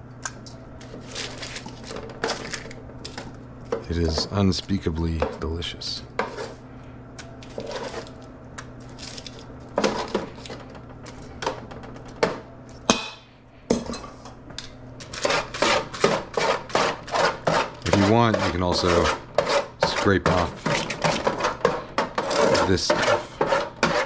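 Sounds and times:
tongs scraping metal pan: 0:15.0 - 0:24.0.

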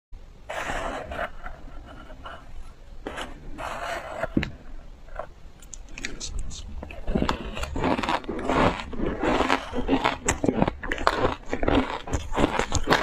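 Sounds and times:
metal spoon scraping shaved ice: 0:06.9 - 0:13.0.

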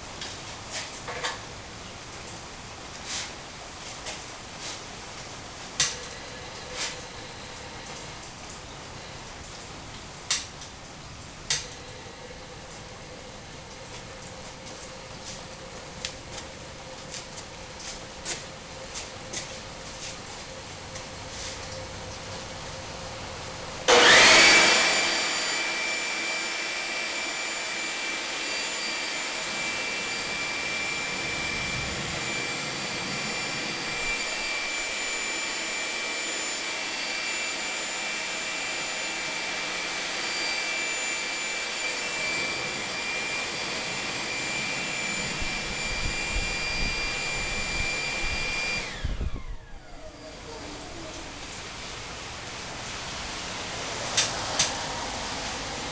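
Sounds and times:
gas turbine burner roaring: 0:11.4 - 0:55.9
air blower winding down: 0:23.8 - 0:55.9.

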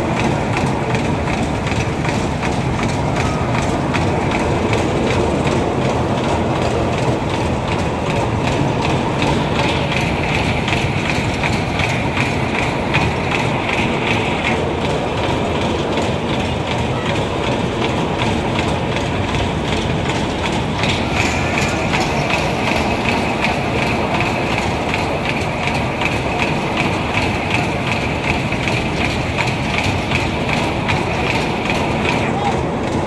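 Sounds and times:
carnival ride rumble and rattle: 0:00.0 - 0:33.0.

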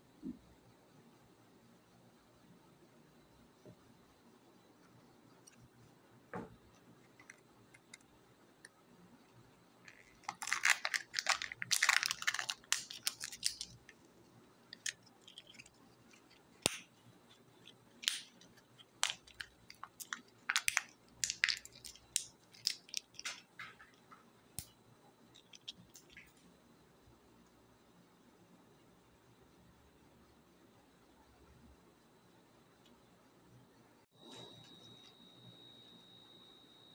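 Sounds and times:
plastic packaging crinkling: 0:09.8 - 0:14.1, 0:14.7 - 0:23.9.

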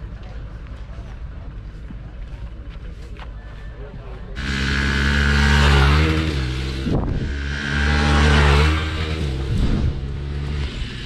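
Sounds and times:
motorcycle engine revving: 0:04.4 - 0:11.0.

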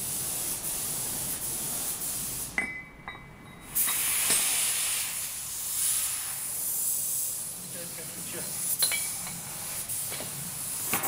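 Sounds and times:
steady hiss: 0:00.0 - 0:02.6, 0:03.6 - 0:11.0
metal clinks: 0:02.6 - 0:04.0, 0:08.8 - 0:09.4.

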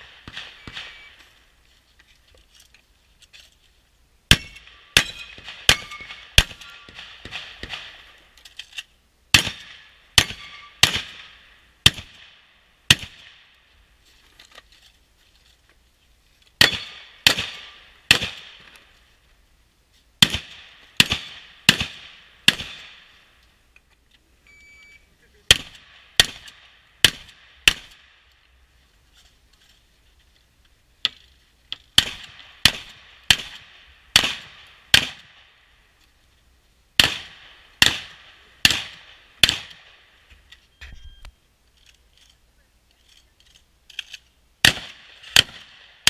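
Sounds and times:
shotgun shots with echo: 0:00.0 - 0:01.2, 0:04.3 - 0:08.2, 0:09.3 - 0:13.4, 0:16.6 - 0:18.6, 0:20.2 - 0:23.1, 0:25.5 - 0:28.0, 0:32.0 - 0:35.4, 0:37.0 - 0:39.9, 0:44.6 - 0:46.0.

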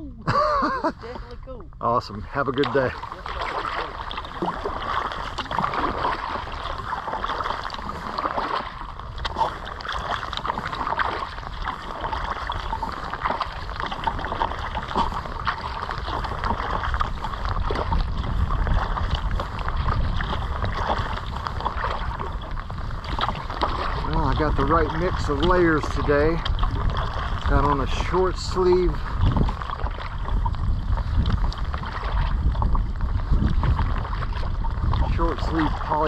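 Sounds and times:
water lapping against kayak hull: 0:00.0 - 0:36.0
wind rumble on microphone: 0:00.0 - 0:36.0.

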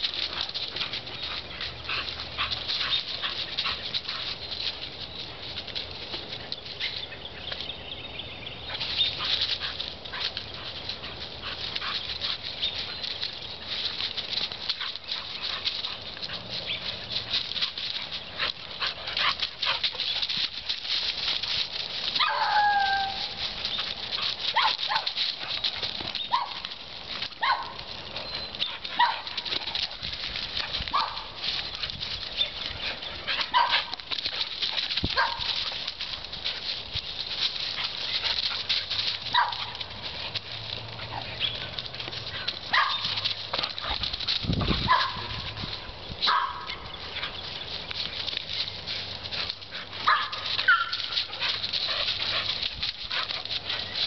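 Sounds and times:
paws rustling through leaves: 0:00.0 - 0:54.0
dog yipping: 0:22.2 - 0:23.4, 0:24.5 - 0:25.2, 0:26.2 - 0:26.6, 0:27.4 - 0:27.8, 0:28.4 - 0:29.3, 0:30.9 - 0:31.3, 0:33.4 - 0:33.9, 0:35.2 - 0:35.6, 0:39.3 - 0:39.8, 0:42.7 - 0:43.2, 0:44.8 - 0:45.4, 0:46.2 - 0:46.8, 0:50.0 - 0:51.2.

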